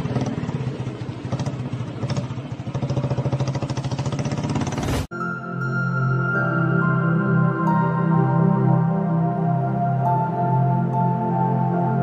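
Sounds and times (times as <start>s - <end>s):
motorcycle engine revving: 0.0s - 5.1s.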